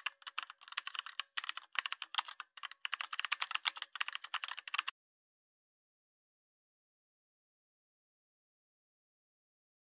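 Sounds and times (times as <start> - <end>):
computer keyboard typing: 0.0 - 4.9.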